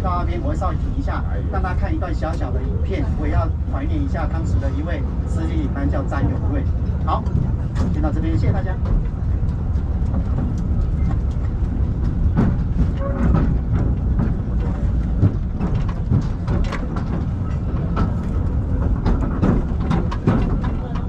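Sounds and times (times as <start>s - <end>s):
railway car rumbling: 0.0s - 21.0s
wheels clacking on rails: 0.0s - 21.0s.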